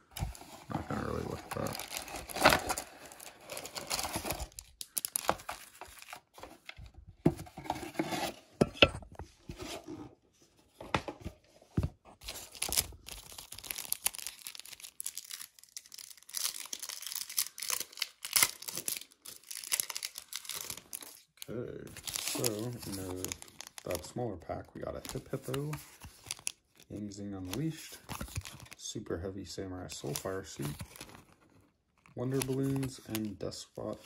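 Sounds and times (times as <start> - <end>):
cardboard packaging rustling: 0.0 - 8.6, 9.2 - 28.8, 29.9 - 34.0
foil wrappers crinkling and tearing: 0.2 - 6.4, 12.2 - 24.1, 24.8 - 26.8.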